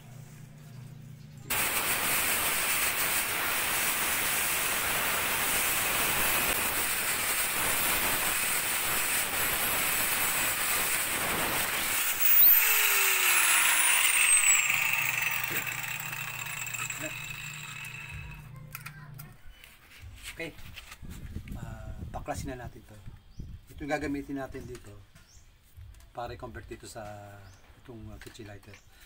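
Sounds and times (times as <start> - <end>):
angle grinder cutting plastic: 1.5 - 18.5
grinder winding down whine: 1.5 - 18.5.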